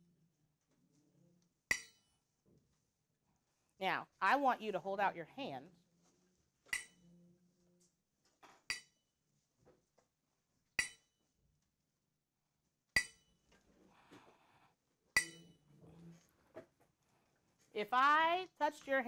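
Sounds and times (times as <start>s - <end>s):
tuning fork striking wooden block: 10.8s - 11.1s, 15.2s - 15.6s.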